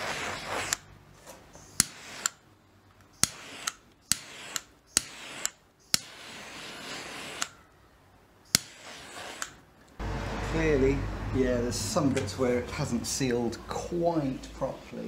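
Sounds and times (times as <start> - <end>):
blowtorch flame hissing: 1.8 - 2.4, 3.2 - 7.5, 8.5 - 9.7.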